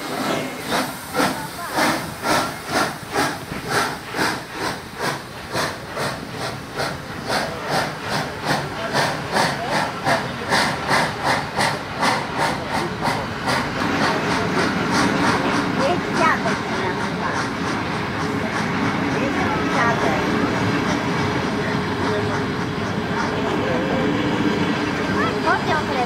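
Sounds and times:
steam hissing: 0.0 - 26.0
steam locomotive chuffing: 0.0 - 26.0.

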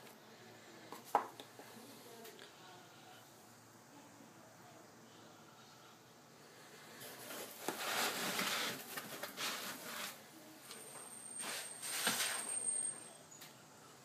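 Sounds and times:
foam and cardboard rustling: 7.0 - 10.2, 11.4 - 12.6.

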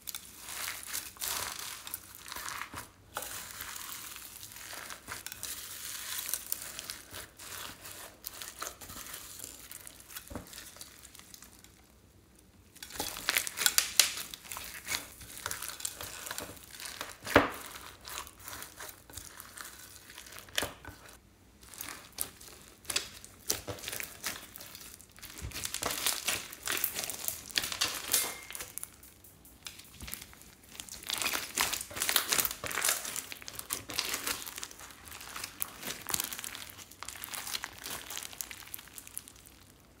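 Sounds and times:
crunchy slime being kneaded: 0.0 - 40.0.

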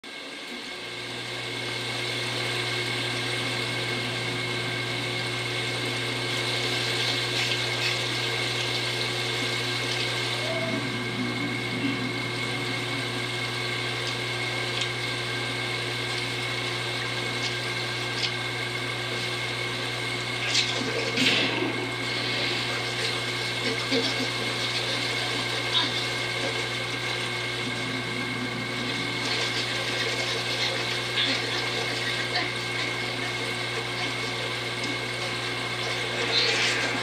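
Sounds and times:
strong low rumble: 27.5 - 29.7.

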